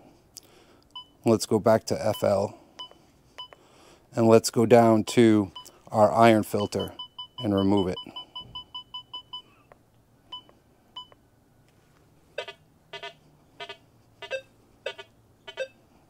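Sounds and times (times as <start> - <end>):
metal detector chirps: 12.4 - 15.8.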